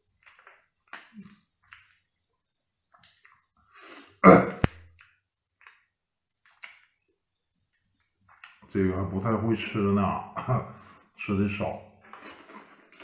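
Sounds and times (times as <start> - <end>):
mouth smacks and clicks eating: 7.7 - 8.7.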